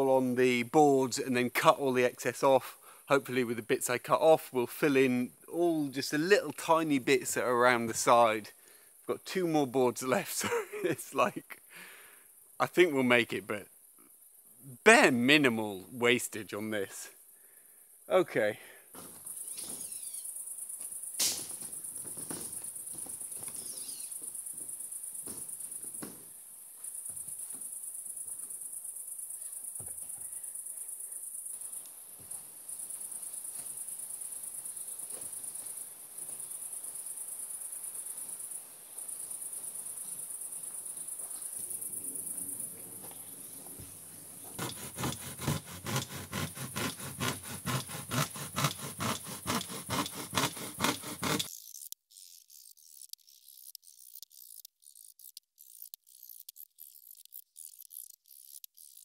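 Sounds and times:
crickets chirping: 0.0 - 59.0
regular strokes: 43.6 - 59.0.

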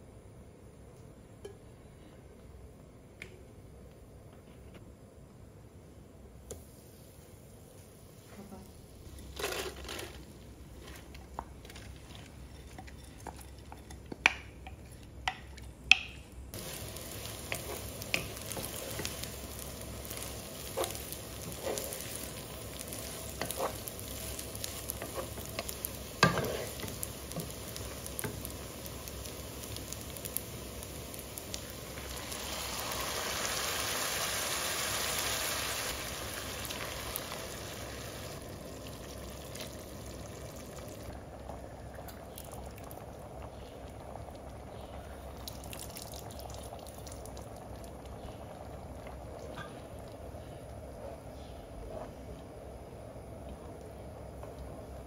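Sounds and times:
food sizzling in frying pan: 16.5 - 41.2.

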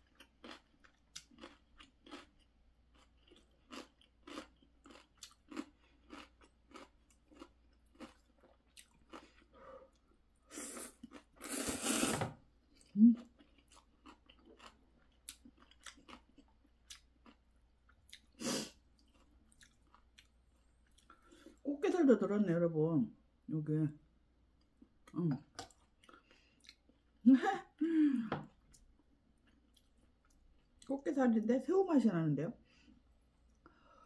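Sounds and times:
noodle slurping: 10.5 - 12.4.

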